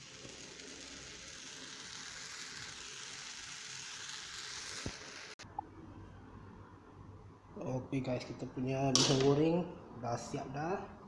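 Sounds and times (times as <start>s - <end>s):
noodles sizzling in wok: 0.0s - 5.4s.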